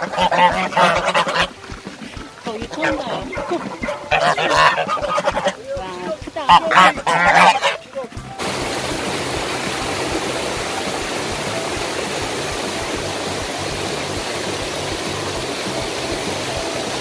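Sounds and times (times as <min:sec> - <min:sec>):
geese honking loudly: 0:00.0 - 0:08.2
waterfall rushing into a stream: 0:00.0 - 0:17.0.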